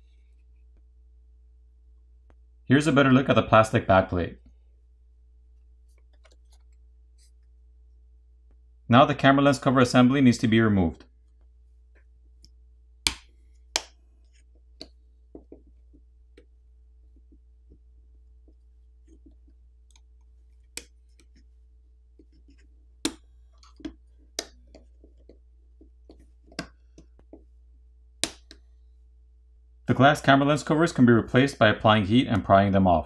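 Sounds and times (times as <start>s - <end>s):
faint low hum: 0.0s - 33.0s.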